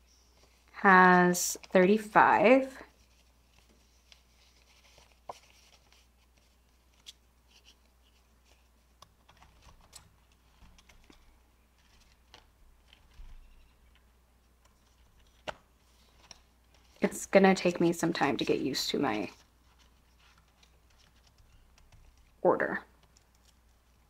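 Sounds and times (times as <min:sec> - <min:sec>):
paper rustling: 0:02.9 - 0:14.0, 0:14.6 - 0:22.4.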